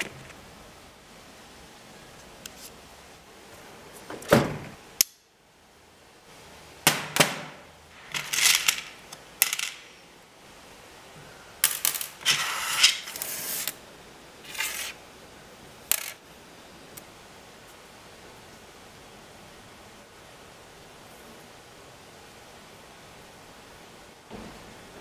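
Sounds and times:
metal nuts and washers clinking: 0:08.0 - 0:10.0.

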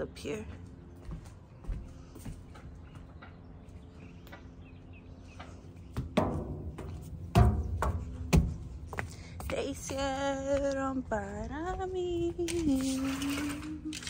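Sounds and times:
footsteps on metal stairs: 0:01.0 - 0:13.0.

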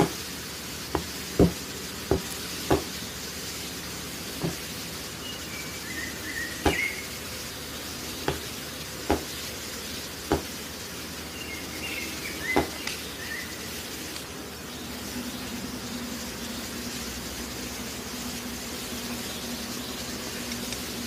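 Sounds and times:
steady hiss: 0:00.0 - 0:21.0
sharp knocks: 0:00.9 - 0:02.9, 0:04.4 - 0:04.6, 0:06.6 - 0:06.8, 0:08.2 - 0:08.5, 0:09.1 - 0:09.3, 0:10.3 - 0:10.5
faint high chirps: 0:05.2 - 0:07.3.

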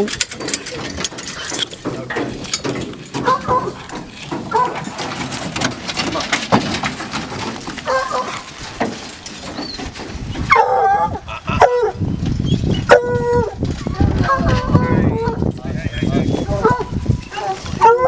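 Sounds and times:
hounds barking and bawling: 0:02.6 - 0:12.0, 0:12.7 - 0:15.4, 0:16.5 - 0:18.0.

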